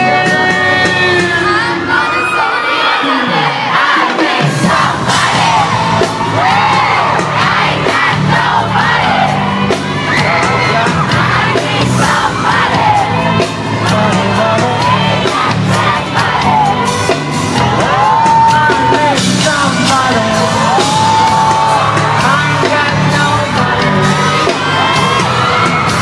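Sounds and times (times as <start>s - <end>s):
amplified pop music with singer: 0.0s - 26.0s
crowd screaming and singing along: 0.0s - 26.0s.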